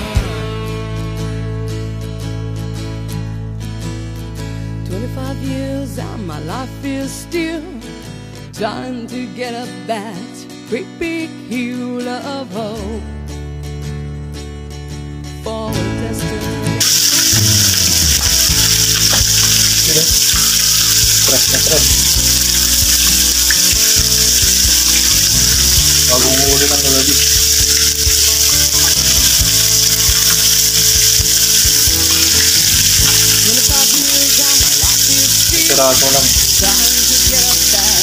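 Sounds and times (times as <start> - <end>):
fish sizzling in a pan: 16.8 - 38.0.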